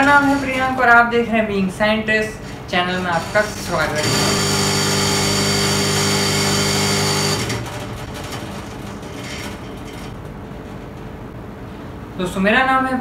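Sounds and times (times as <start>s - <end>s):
small motor humming and whining: 4.0s - 7.6s.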